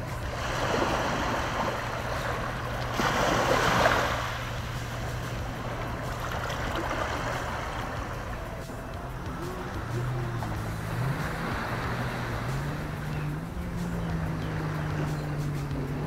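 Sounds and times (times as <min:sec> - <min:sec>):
small waves lapping on a beach: 0:00.0 - 0:16.0.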